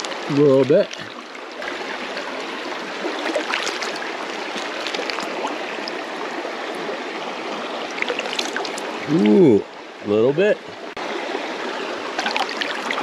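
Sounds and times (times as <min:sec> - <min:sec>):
bag splashing in water: 0:03.2 - 0:05.5
river babbling over rocks: 0:11.0 - 0:13.0.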